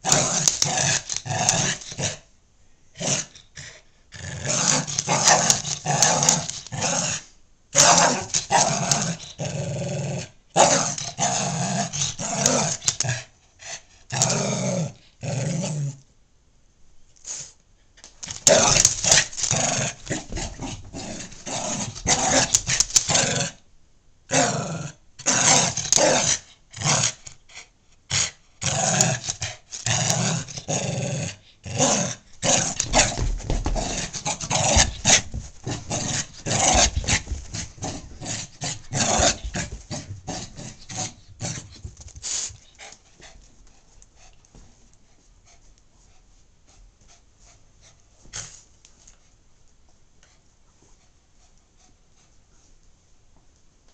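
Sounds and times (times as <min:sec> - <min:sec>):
small dog play-growling: 0:00.0 - 0:02.2, 0:03.0 - 0:07.2, 0:07.8 - 0:13.3, 0:18.2 - 0:23.6, 0:28.6 - 0:42.0.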